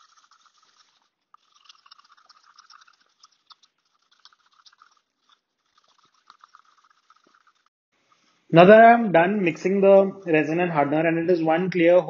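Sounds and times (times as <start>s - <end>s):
stir stick scraping mixing cup: 0.0s - 8.5s.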